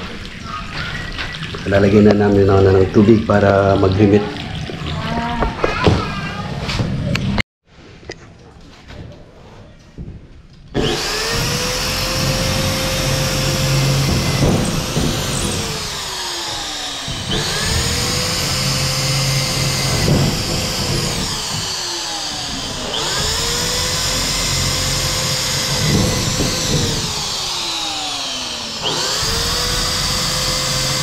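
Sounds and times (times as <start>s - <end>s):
electric drill motor whine: 10.8s - 31.0s.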